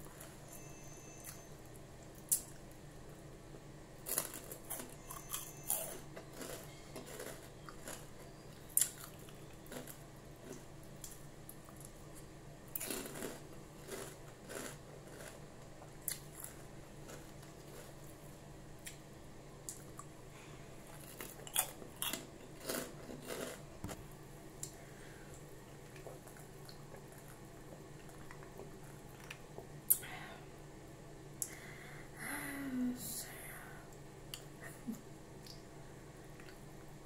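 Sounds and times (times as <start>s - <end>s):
crunching pork rinds: 4.0s - 12.0s, 12.7s - 18.2s, 20.9s - 24.0s.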